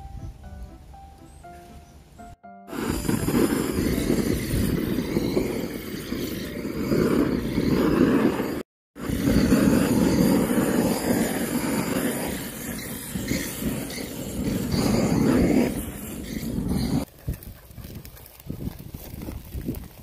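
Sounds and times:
butane torch roaring: 0:02.7 - 0:17.1.

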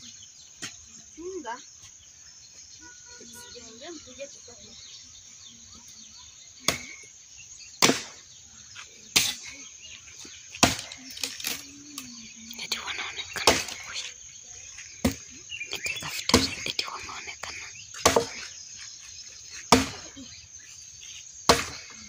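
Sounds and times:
insects chirring: 0:00.0 - 0:22.0
axe chopping wood: 0:07.8 - 0:08.2, 0:10.6 - 0:11.0, 0:18.0 - 0:18.5, 0:19.7 - 0:20.1, 0:21.5 - 0:22.0.

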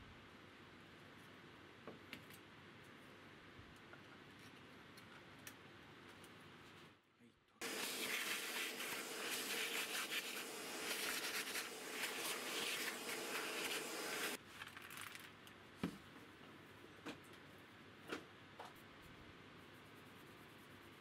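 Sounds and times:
brush scratching on guitar: 0:07.6 - 0:14.4, 0:19.1 - 0:21.0
vacuum cleaner running: 0:07.6 - 0:14.4.

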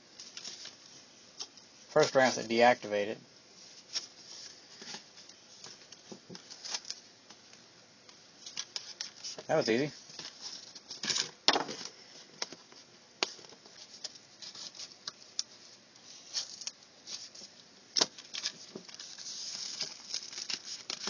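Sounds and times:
paper rustling: 0:16.0 - 0:21.0.

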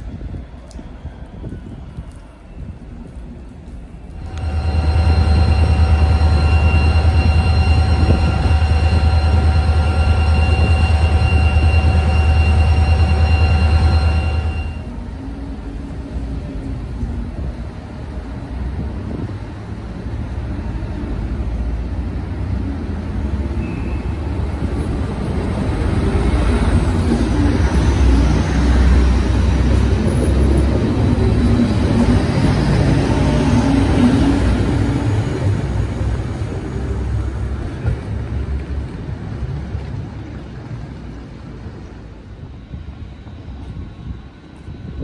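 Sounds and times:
train rumbling past: 0:00.0 - 0:45.0.

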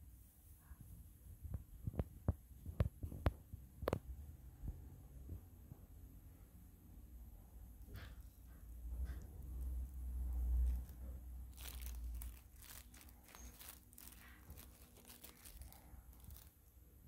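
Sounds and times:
plastic food box crinkling: 0:09.1 - 0:16.7.

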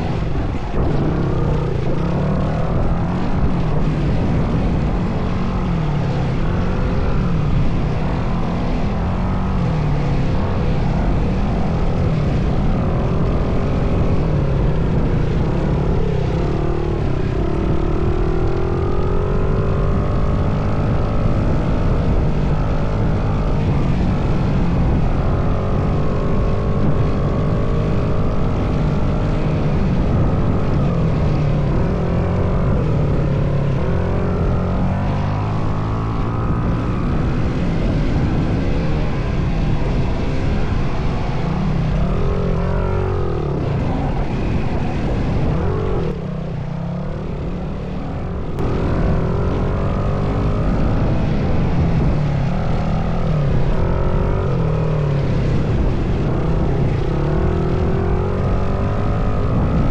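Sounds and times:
dirt bike engine revving: 0:00.0 - 0:11.7.

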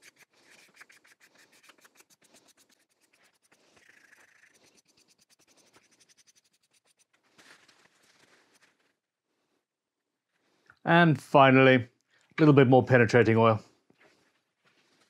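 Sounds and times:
sandpaper scratching on wood: 0:00.0 - 0:07.2.

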